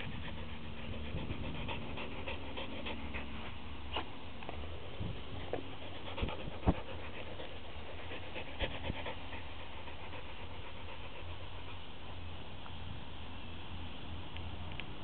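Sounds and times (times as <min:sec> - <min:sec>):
dog panting: 0:00.0 - 0:04.1, 0:05.2 - 0:12.2.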